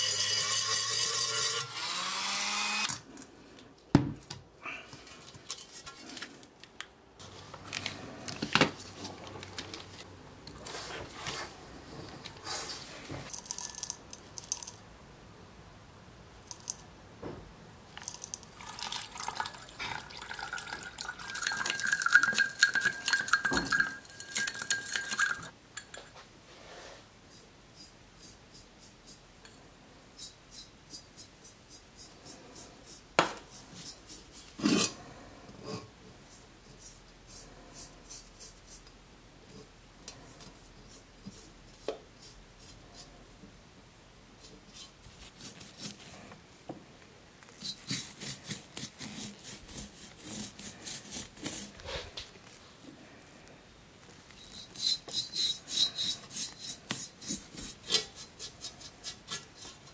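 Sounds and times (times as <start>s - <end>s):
liquid pouring: 18.0s - 25.5s
stirring in glass beaker: 18.0s - 25.9s, 54.3s - 59.9s
glassware clinking: 18.6s - 26.0s.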